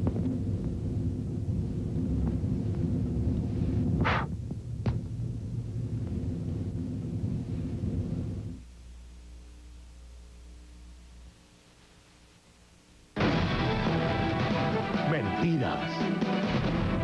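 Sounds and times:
low throbbing rumble: 0:00.0 - 0:09.5
faint low hum: 0:00.0 - 0:14.0.

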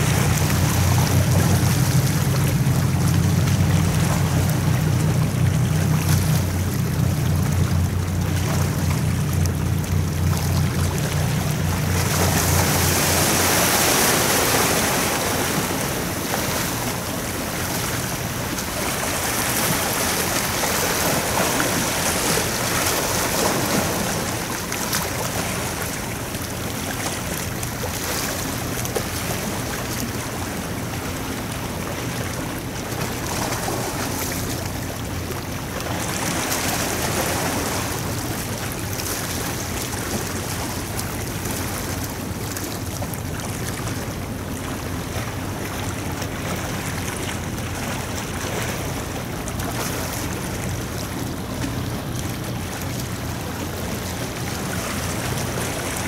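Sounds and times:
low ship engine hum: 0:00.0 - 0:56.0
waves washing: 0:00.0 - 0:56.0.

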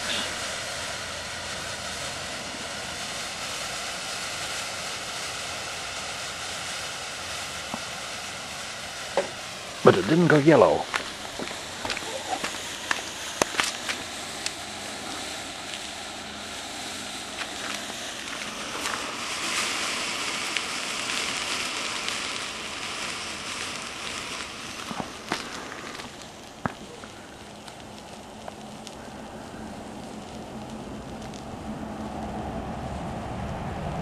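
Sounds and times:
smoke mixture burning hiss: 0:00.0 - 0:34.0
pops and crackles: 0:07.6 - 0:08.0, 0:09.1 - 0:32.4.

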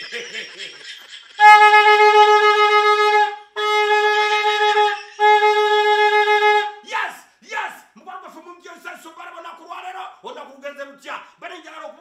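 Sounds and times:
plastic horn blasts: 0:01.4 - 0:06.7.

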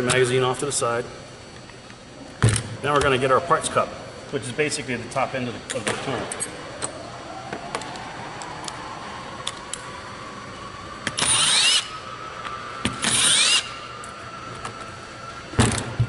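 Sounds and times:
cordless driver whining: 0:11.0 - 0:15.8.

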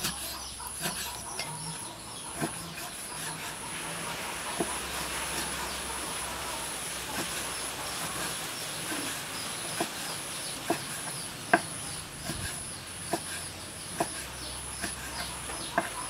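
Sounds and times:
cleaver chopping on wooden board: 0:02.4 - 0:03.4, 0:09.8 - 0:16.0.

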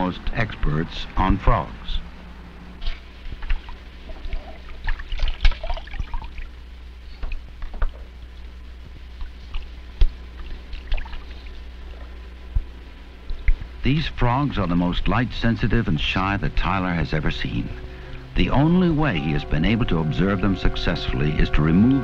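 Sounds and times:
steady low hum: 0:00.0 - 0:22.0
water splashing in a tank: 0:02.8 - 0:06.6, 0:09.2 - 0:12.2, 0:13.2 - 0:13.7.

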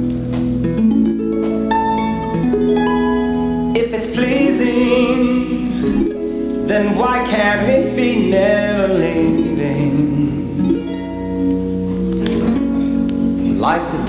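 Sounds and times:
held notes with vibrato: 0:00.0 - 0:14.0
plucked harp notes: 0:00.0 - 0:14.0
person singing: 0:03.7 - 0:11.5, 0:12.2 - 0:14.0.

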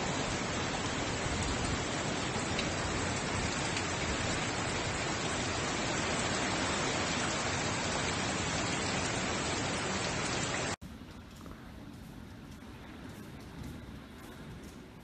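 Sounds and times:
heavy rain: 0:00.0 - 0:10.8
strong wind: 0:00.0 - 0:10.8.

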